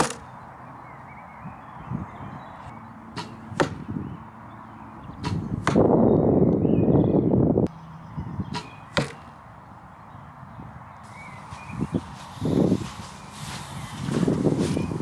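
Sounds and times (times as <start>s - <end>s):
arrow striking foam target: 3.1s - 3.9s, 5.2s - 5.9s, 8.5s - 9.3s.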